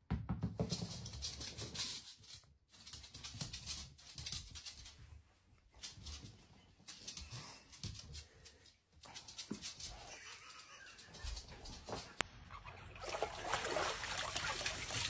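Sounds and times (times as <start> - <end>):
dog claws clicking on floor: 0.6 - 12.2.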